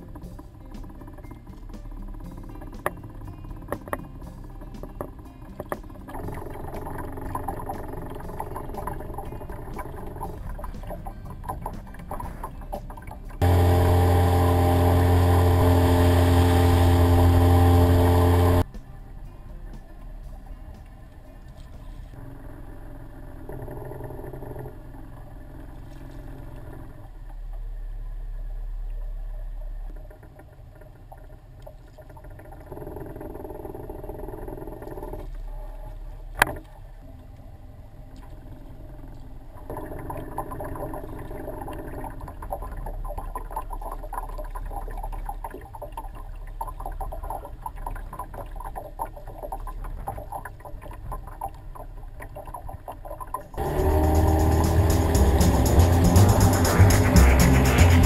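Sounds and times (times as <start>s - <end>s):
water lapping against boat: 0.0s - 18.7s, 38.1s - 58.0s.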